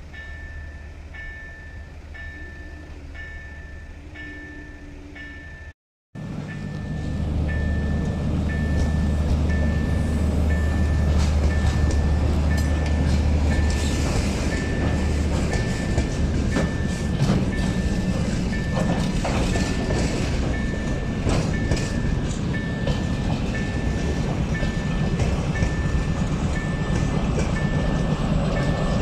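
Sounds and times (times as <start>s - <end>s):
crossing signal high tone: 6.5s - 29.0s
train wheels clicking over rail joints: 6.6s - 29.0s.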